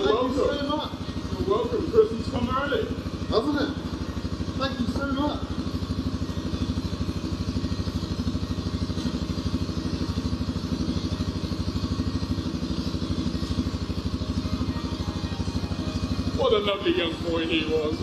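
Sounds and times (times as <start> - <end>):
quad bike engine idling: 0.0 - 18.0.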